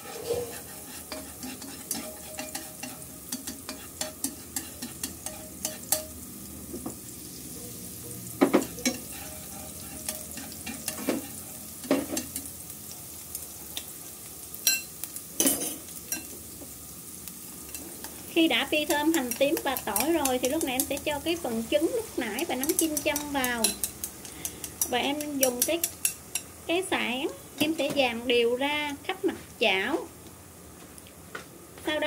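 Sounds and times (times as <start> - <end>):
shallots sizzling in hot oil: 0.0 - 31.2
utensil tapping against pan: 22.6 - 26.5.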